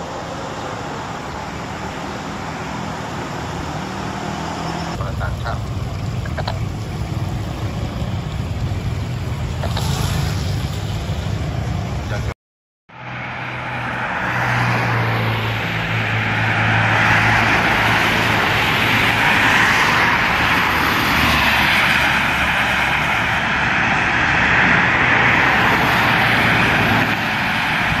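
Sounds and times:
low engine hum: 2.1s - 12.3s
tyres hissing on wet road: 13.3s - 28.0s.

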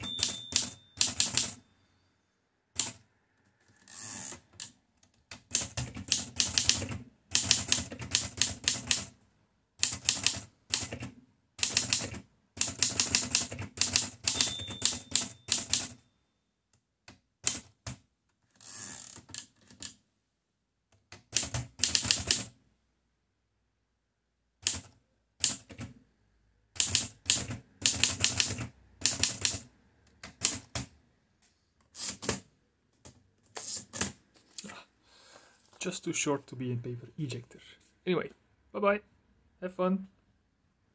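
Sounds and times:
typewriter carriage return: 0.0s - 1.6s, 9.8s - 16.0s, 31.9s - 32.5s
typewriter key strikes: 0.0s - 1.6s, 11.6s - 16.0s.

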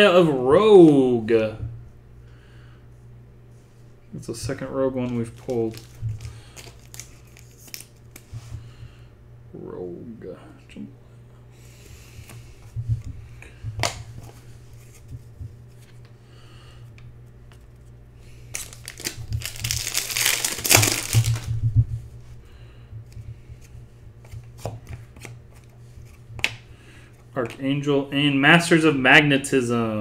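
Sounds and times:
cards clicking: 5.0s - 8.3s
foil wrapper tearing and crinkling: 5.1s - 8.2s, 18.5s - 21.6s.

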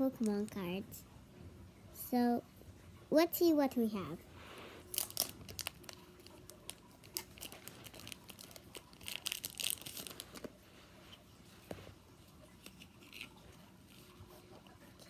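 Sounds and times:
foil wrapper tearing and crinkling: 4.9s - 10.5s.

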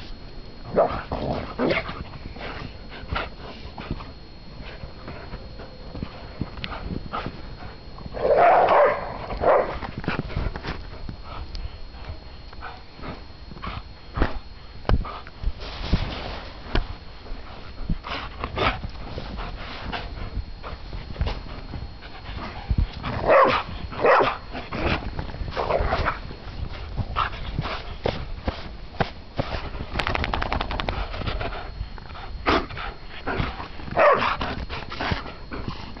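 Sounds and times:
dog barking or growling: 0.7s - 1.9s, 8.1s - 9.8s, 23.1s - 25.0s, 34.0s - 34.4s.

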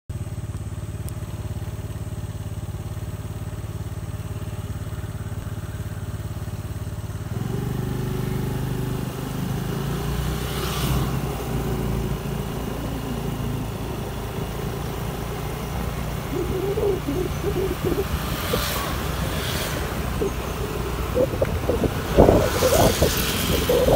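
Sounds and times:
scooter engine running: 0.1s - 23.9s
road and wind noise: 0.2s - 23.9s
vehicle passing: 10.2s - 23.9s.

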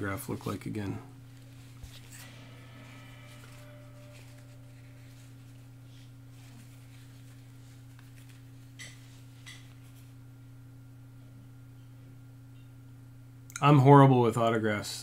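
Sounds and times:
soft glove handling sounds: 0.0s - 10.2s
steady low hum: 0.0s - 15.0s.

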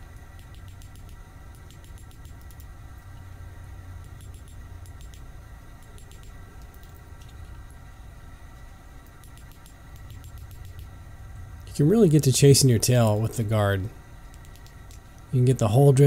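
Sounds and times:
low machine hum: 0.0s - 16.0s
faint light clicks and ticks: 0.2s - 3.3s, 4.0s - 7.7s, 8.5s - 10.9s.

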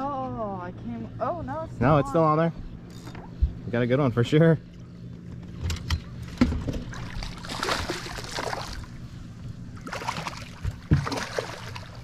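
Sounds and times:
low steady hum: 0.0s - 12.0s
fish splashing in water: 6.9s - 9.0s, 9.8s - 12.0s.

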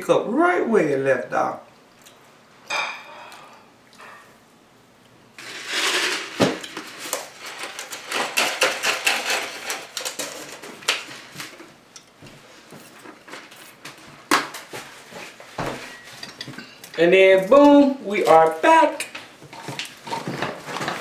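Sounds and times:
plates and utensils clattering: 2.7s - 4.3s, 5.4s - 11.6s, 15.2s - 17.0s.

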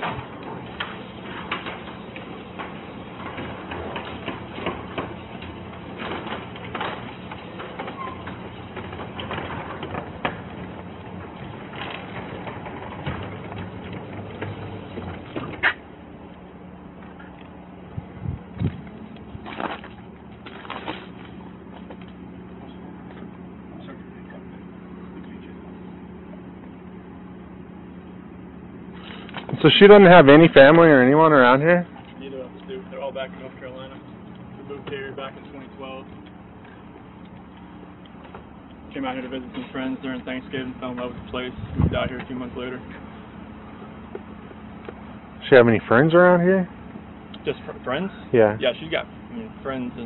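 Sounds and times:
garage door clicking on tracks: 0.0s - 15.9s
garage door motor hum: 0.0s - 50.0s.

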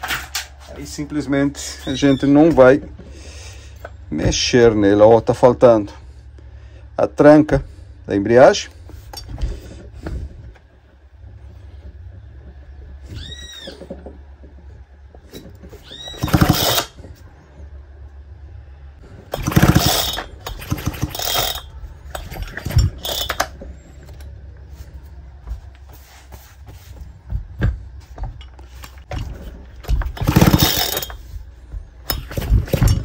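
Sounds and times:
chainsaw parts clattering and scraping: 15.2s - 17.2s, 19.3s - 24.4s, 28.4s - 31.4s, 32.0s - 33.0s.

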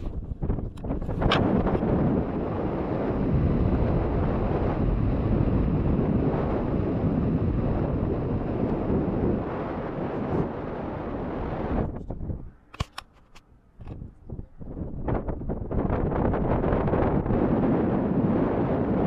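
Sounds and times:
wind buffeting microphone: 0.0s - 13.1s, 13.8s - 19.0s
sharp click: 12.7s - 14.0s.

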